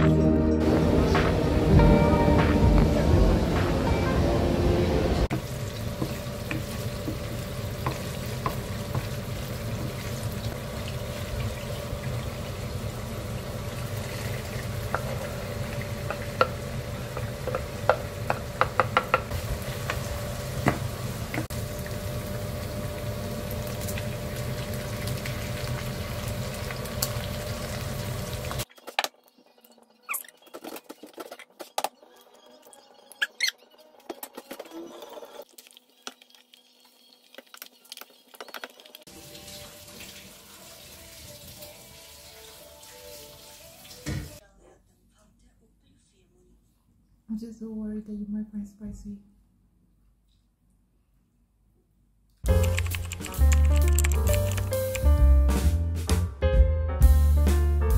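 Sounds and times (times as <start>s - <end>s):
meat sizzling in a pan: 5.3s - 18.3s, 19.0s - 28.6s, 39.0s - 44.4s
egg cracking taps: 17.2s - 19.3s.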